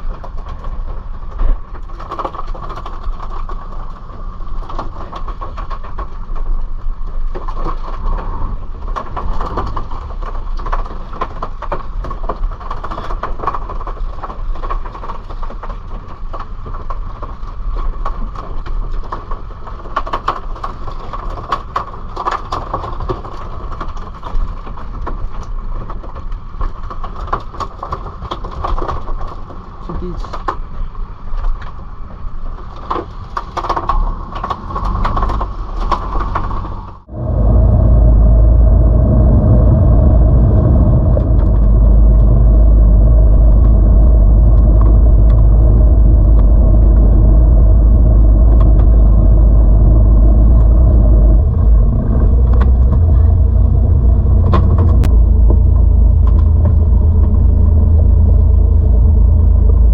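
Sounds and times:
boat engine rumbling and whining: 33.9 - 59.9
wind and water rushing: 34.0 - 58.6.

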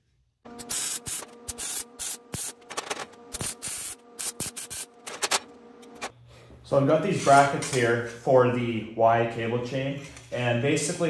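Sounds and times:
welder crackling bursts: 0.5 - 2.7, 3.3 - 5.1.

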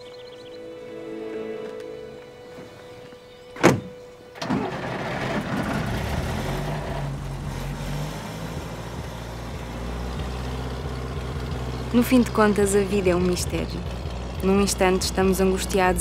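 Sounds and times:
soft music: 0.0 - 5.8
car engine rumbling: 1.7 - 16.0.

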